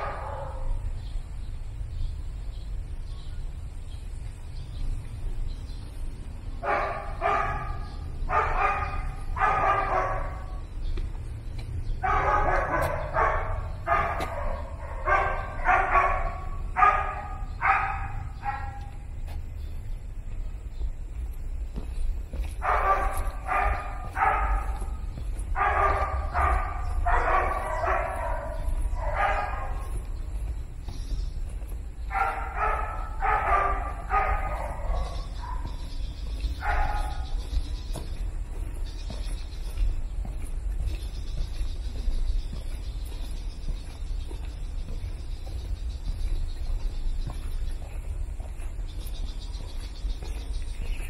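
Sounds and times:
dog barking: 0.0s - 0.9s, 6.6s - 10.6s, 12.0s - 19.0s, 22.5s - 30.2s, 32.1s - 38.2s
steady low rumble: 0.0s - 51.0s.

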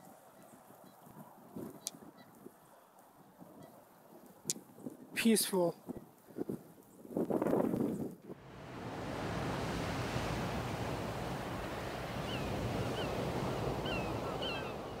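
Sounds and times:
river water rushing: 8.4s - 15.0s
geese calling: 12.1s - 15.0s.

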